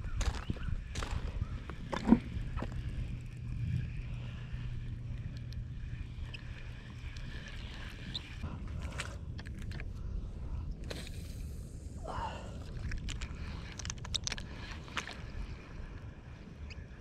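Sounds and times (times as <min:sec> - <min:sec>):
low rumble: 0:00.0 - 0:13.6.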